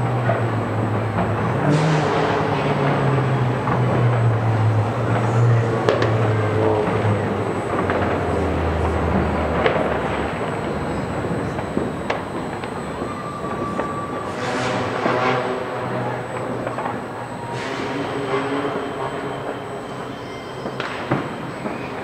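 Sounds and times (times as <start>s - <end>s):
low engine hum: 0.0s - 14.3s
city traffic rumble: 0.0s - 22.0s
distant sharp pops: 5.1s - 7.0s, 20.6s - 22.0s.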